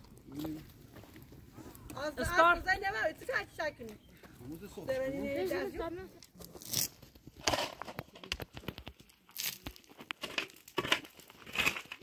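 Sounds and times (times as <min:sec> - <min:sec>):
crinkling and rustling: 0:06.0 - 0:12.0.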